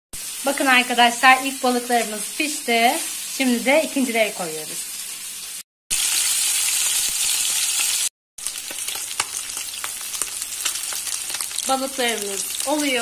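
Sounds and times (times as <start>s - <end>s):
fish sizzling in hot oil: 0.2s - 13.0s
oil crackling and popping: 5.0s - 13.0s.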